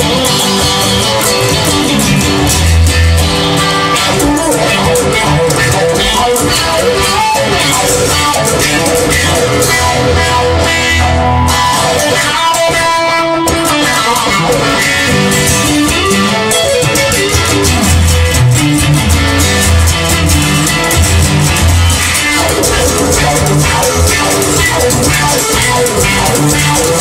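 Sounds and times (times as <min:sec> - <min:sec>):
guitar song over steady beat: 0:00.0 - 0:27.0.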